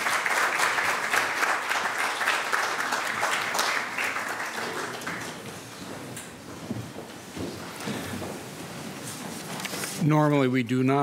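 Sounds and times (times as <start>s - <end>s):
congregation applauding: 0.0s - 5.8s.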